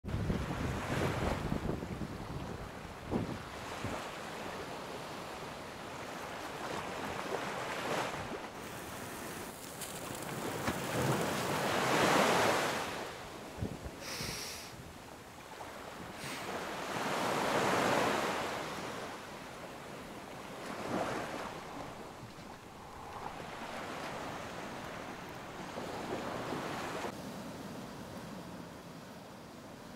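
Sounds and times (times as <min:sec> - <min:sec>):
ocean waves washing in: 0:00.2 - 0:29.9
high hiss: 0:14.0 - 0:14.8.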